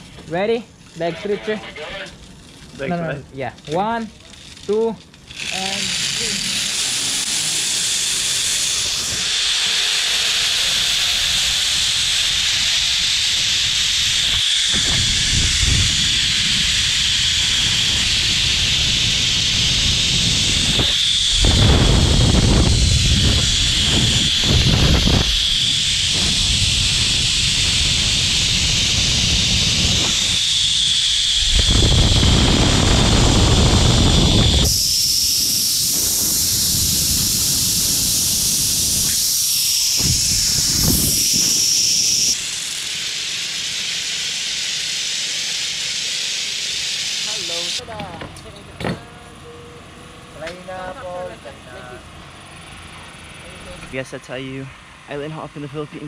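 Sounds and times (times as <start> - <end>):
zip line pulleys whirring: 0.0 - 55.5
wind gusts on microphone: 10.6 - 30.5, 31.1 - 39.3, 39.9 - 41.8.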